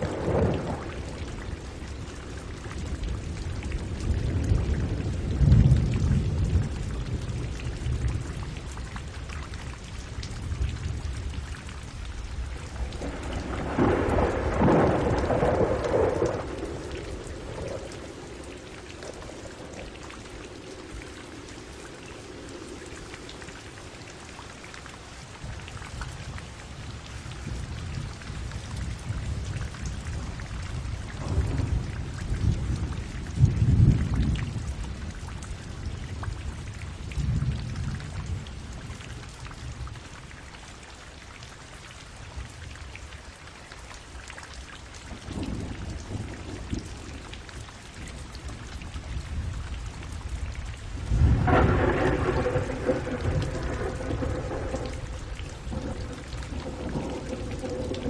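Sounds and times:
rolling thunder: 0.0 - 8.6, 12.5 - 23.9, 27.4 - 35.2, 45.2 - 47.3, 48.4 - 58.0
steady rain falling: 0.0 - 58.0.

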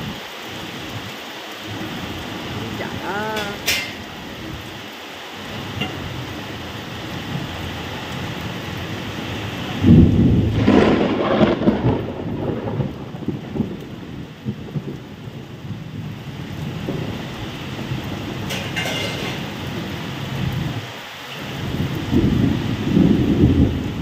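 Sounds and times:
heavy rain falling: 0.0 - 24.0
thunder clap and rumble: 5.5 - 20.9, 21.5 - 24.0.

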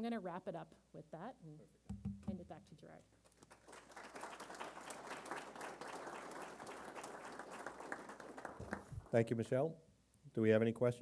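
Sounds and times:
audience applauding: 3.3 - 9.2.

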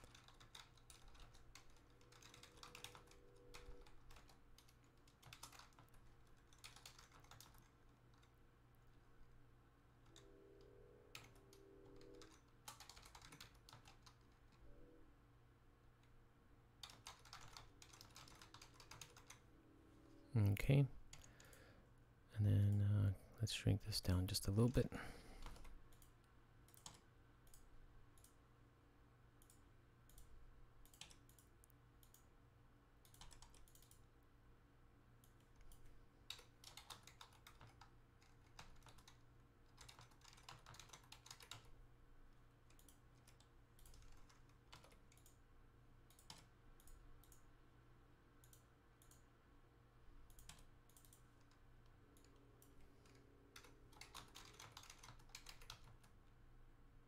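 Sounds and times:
keyboard typing: 0.0 - 8.4, 10.0 - 14.6, 16.8 - 19.4, 25.4 - 28.4, 29.4 - 32.3, 33.0 - 34.1, 35.2 - 41.8, 42.6 - 45.4, 46.1 - 47.4, 50.3 - 56.2
faint low hum: 0.0 - 57.0.

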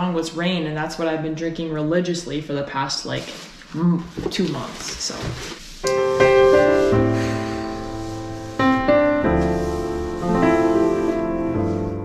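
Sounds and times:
slow piano music: 5.8 - 12.0.

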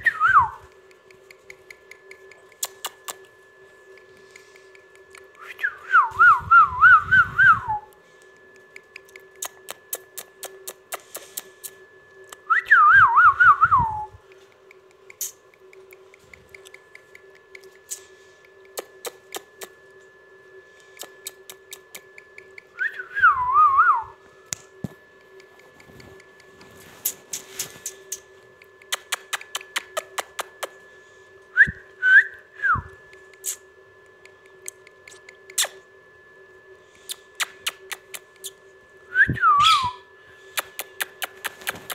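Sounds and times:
small sharp clicks: 0.7 - 3.3, 8.2 - 12.4, 14.3 - 19.7, 24.5 - 30.7
short warbling whistles: 37.0 - 41.9.

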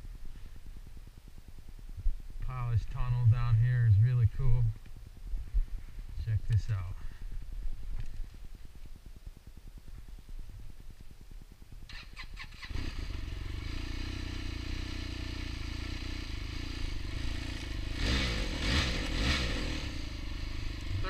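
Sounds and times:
snowmobile engine idling and revving: 2.2 - 7.2, 11.9 - 21.0.

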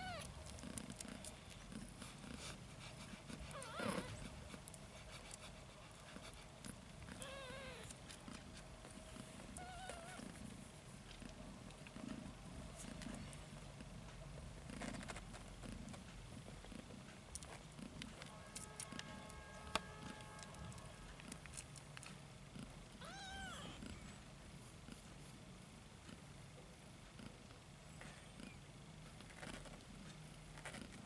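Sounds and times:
cat purring: 0.0 - 19.2, 20.7 - 26.3, 27.1 - 31.0
kitten mewing: 23.0 - 24.0.

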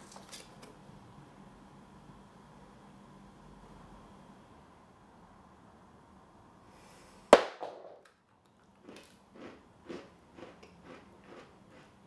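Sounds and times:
crunchy chewing: 8.8 - 12.0.

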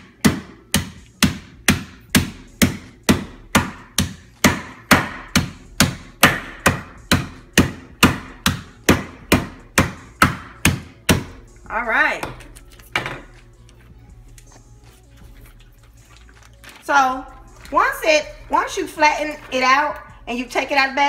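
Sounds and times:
meat mallet tapping: 0.0 - 11.4.

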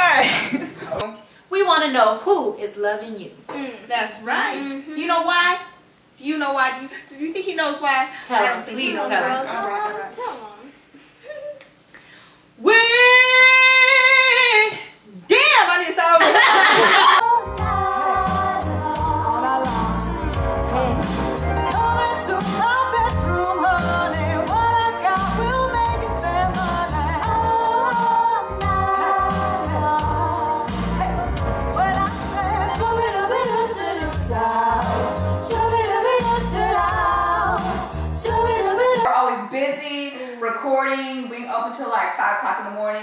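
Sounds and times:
women singing pop song: 16.2 - 39.5
music with beat and bass: 17.3 - 38.7.

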